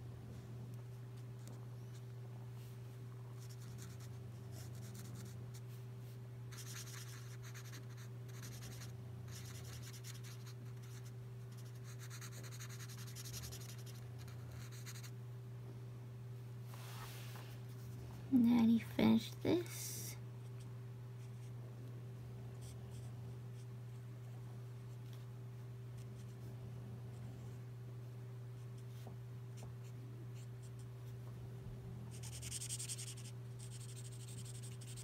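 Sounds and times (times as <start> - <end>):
steady low hum: 0.0 - 35.0
marker scratching on paper: 6.5 - 15.1, 32.1 - 35.0.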